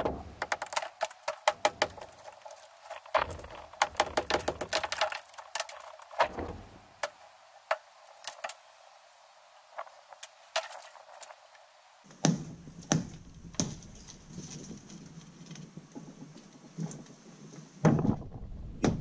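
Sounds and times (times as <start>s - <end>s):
debris falling: 0.0s - 7.2s.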